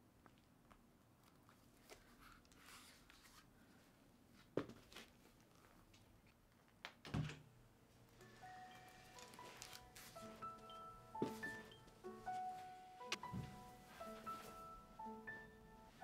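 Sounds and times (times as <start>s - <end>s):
soft music: 8.1s - 16.0s.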